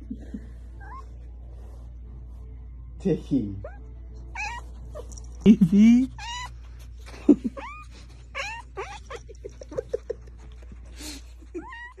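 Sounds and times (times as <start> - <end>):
cat crying: 3.6 - 5.1, 6.1 - 6.7, 7.4 - 9.3, 11.4 - 12.0.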